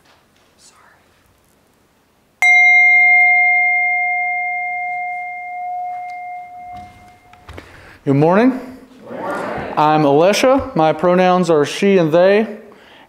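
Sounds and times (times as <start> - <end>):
singing bowl ringing: 2.4 - 7.8.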